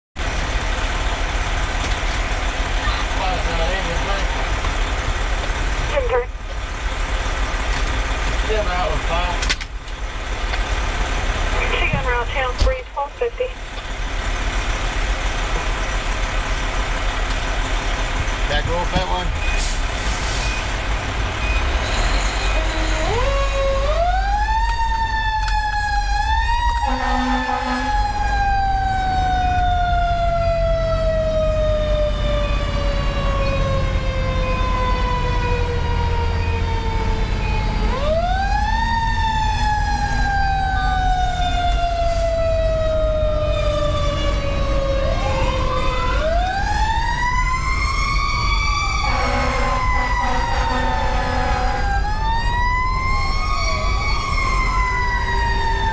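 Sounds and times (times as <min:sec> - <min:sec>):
diesel engine low rumble: 0:00.2 - 0:55.9
fire engine siren winding: 0:21.8 - 0:55.9.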